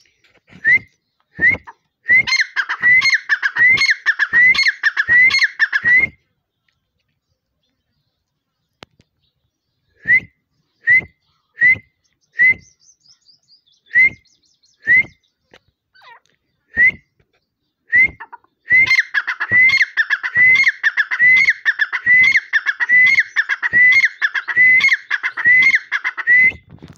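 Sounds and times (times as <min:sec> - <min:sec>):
bird calling sharp ringing notes: 0:01.6 - 0:06.2, 0:18.1 - 0:26.5.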